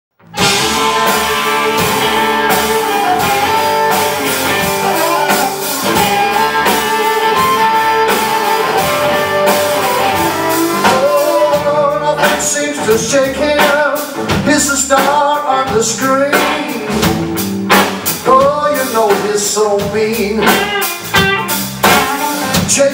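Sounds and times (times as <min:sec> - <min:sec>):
bass guitar: 0:00.1 - 0:22.9
harmonica lead: 0:00.2 - 0:12.3
drum kit: 0:00.2 - 0:22.9
electric guitar: 0:00.2 - 0:22.9.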